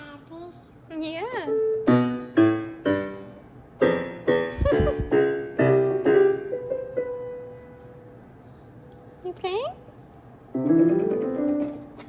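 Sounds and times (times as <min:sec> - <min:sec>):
digital piano notes: 0:01.3 - 0:08.5, 0:10.5 - 0:12.0.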